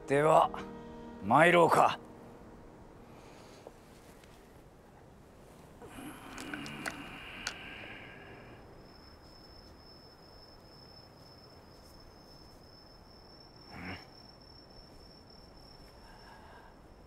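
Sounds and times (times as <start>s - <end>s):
high-pitched insect trill: 5.9s - 17.0s.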